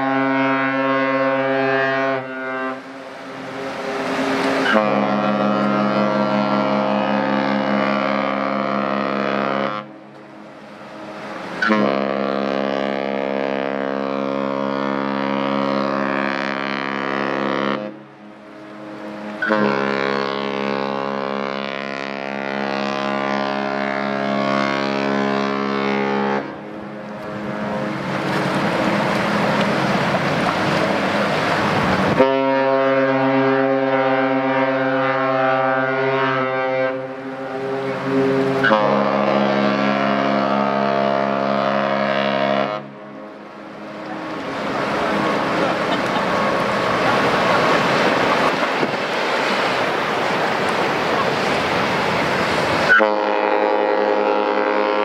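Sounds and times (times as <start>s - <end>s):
second horn different pitch: 0.0s - 3.0s, 4.6s - 10.1s, 11.0s - 28.0s, 32.1s - 44.3s, 52.9s - 55.0s
ship horn long low blasts: 0.0s - 55.0s
rushing noise: 1.1s - 8.1s, 9.9s - 12.2s, 26.4s - 32.3s, 42.8s - 53.2s.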